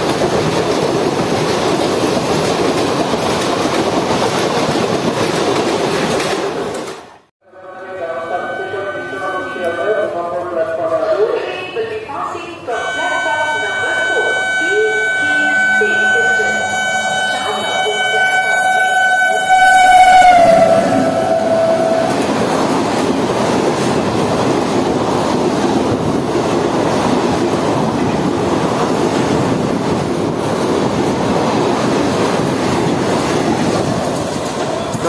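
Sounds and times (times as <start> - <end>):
train coaches rumbling past: 0.0 - 35.0
locomotive horn: 12.7 - 22.3.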